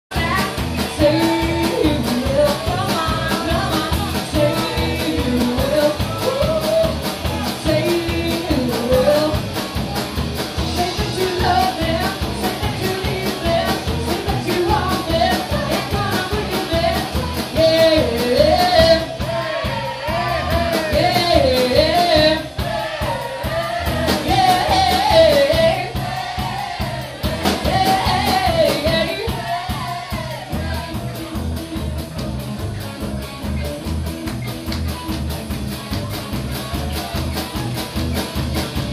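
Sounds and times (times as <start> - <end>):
person singing: 0.1 - 9.4, 10.7 - 26.6, 27.2 - 31.2
electric guitar: 0.1 - 26.2, 27.0 - 38.9
drum kit beat: 0.1 - 38.9.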